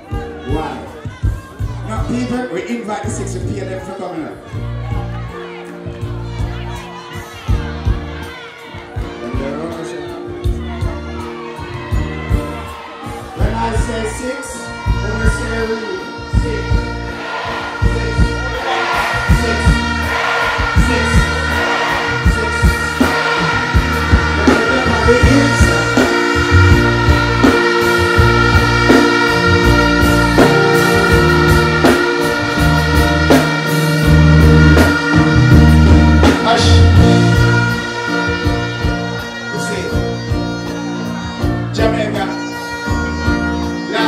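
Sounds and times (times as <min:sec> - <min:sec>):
backing track with heavy bass: 0:00.0 - 0:44.0
man singing into a microphone: 0:20.7 - 0:40.0.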